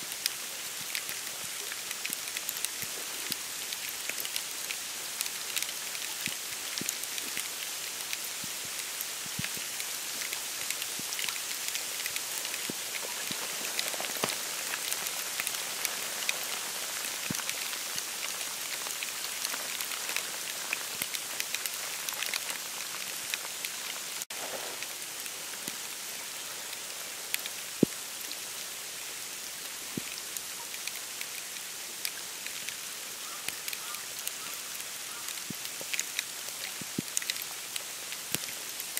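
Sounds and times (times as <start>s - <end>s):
snow pattering on reeds: 0.0s - 38.9s.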